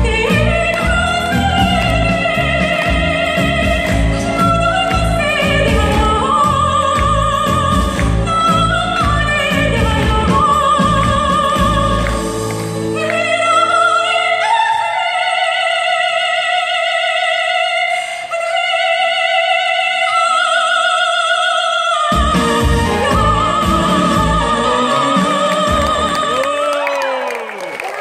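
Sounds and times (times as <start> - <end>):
live band playing: 0.0 - 13.2, 22.2 - 26.7
soprano singing with vibrato: 0.0 - 27.3.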